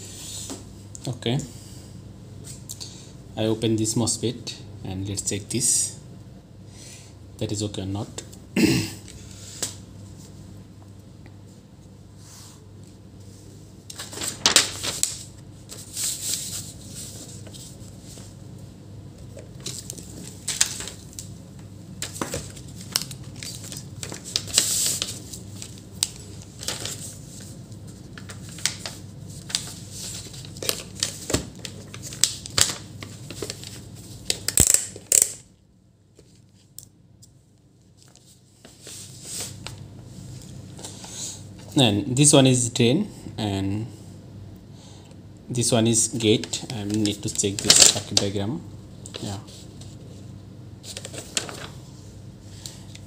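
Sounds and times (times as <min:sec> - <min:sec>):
paper rustling and crinkling: 0:13.9 - 0:18.4, 0:19.2 - 0:21.3, 0:22.0 - 0:35.2, 0:38.0 - 0:39.8, 0:46.4 - 0:48.4, 0:49.1 - 0:51.9.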